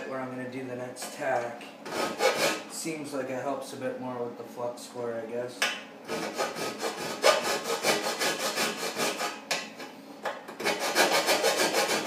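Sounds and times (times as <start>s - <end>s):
hand file scraping metal: 1.8s - 2.7s, 6.1s - 9.9s, 10.6s - 12.0s.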